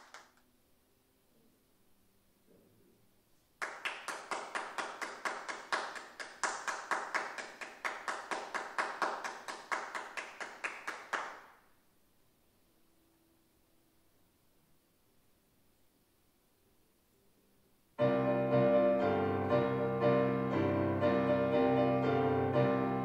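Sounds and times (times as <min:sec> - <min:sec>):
sparse applause: 0:03.6 - 0:11.6.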